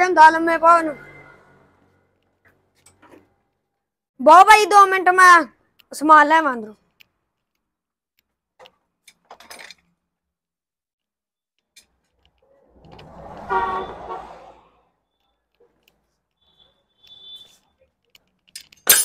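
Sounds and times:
faint clicks and clatters: 5.6 - 10.0, 15.2 - 18.9
passing vehicle rumble: 12.4 - 15.0
vehicle horn: 13.1 - 14.7, 16.5 - 17.6.

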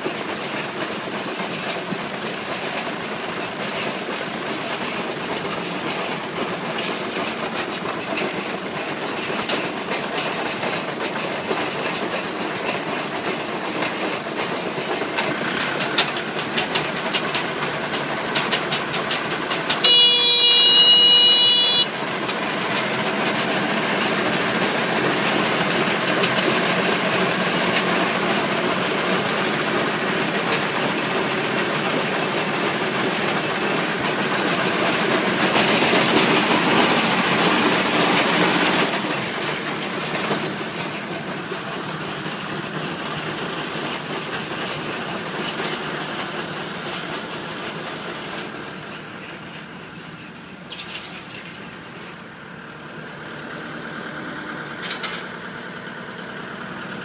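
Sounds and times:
hay baler running: 0.0 - 57.0
loud electronic buzzer tone: 19.8 - 21.9.

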